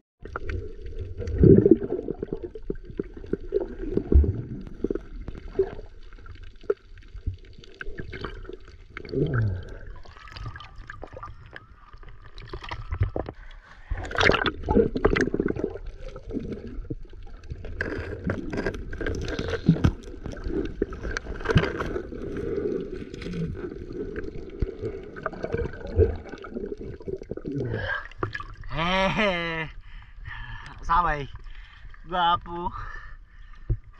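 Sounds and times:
underwater water gurgling: 0.2s - 28.9s
small underwater clicks and knocks: 15.0s - 22.4s.

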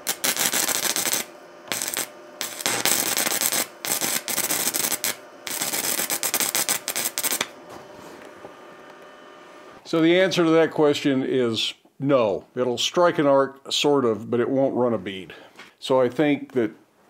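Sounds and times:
welding arc crackling and sputtering: 0.0s - 10.5s.

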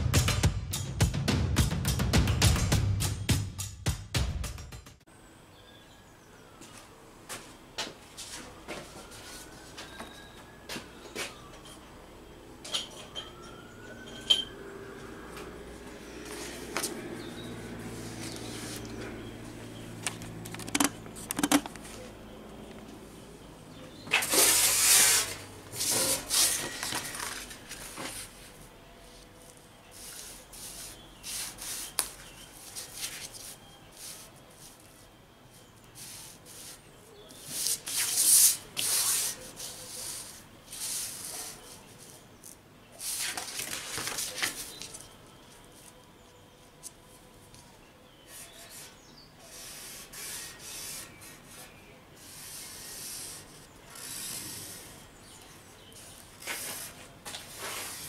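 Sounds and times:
paper scraping across steel sheet: 24.1s - 35.0s, 35.9s - 42.2s, 48.3s - 55.0s, 56.0s - 58.0s.

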